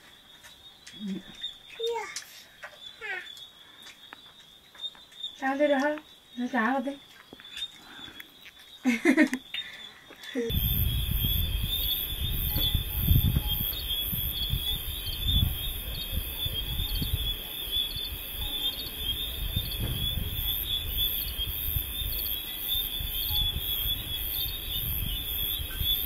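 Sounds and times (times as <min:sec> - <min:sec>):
insects chirping: 0:00.0 - 0:26.0
low rumbling noise: 0:10.5 - 0:22.2.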